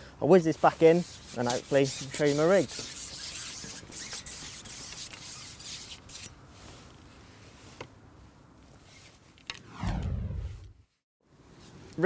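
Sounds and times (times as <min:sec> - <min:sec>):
fishing pole rubbing on roller: 0:00.8 - 0:06.3
whoosh with low boom: 0:09.6 - 0:11.0.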